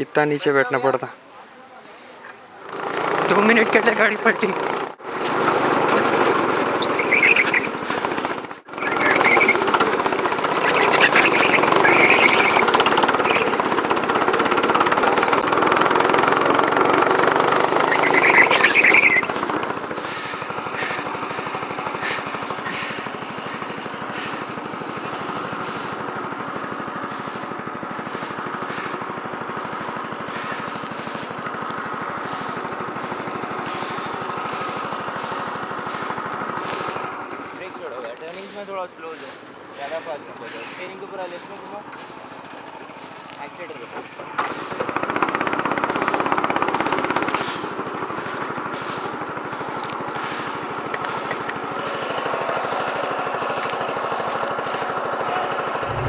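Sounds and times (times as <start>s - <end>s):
go-kart engine: 1.9s - 56.0s
tyre squeals: 6.8s - 8.0s, 8.7s - 13.6s.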